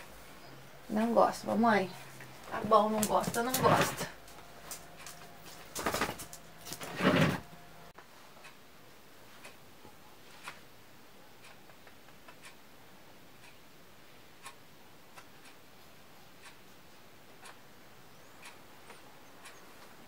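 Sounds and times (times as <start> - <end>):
clock ticking faintly: 8.4 - 20.0.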